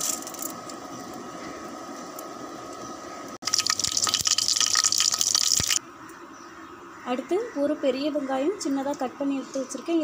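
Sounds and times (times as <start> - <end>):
spices sizzling in hot oil: 3.4 - 5.8.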